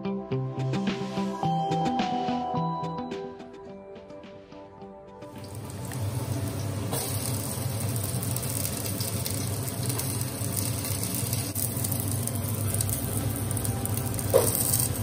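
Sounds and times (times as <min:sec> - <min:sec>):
onion sizzling in hot oil: 0:05.4 - 0:15.0.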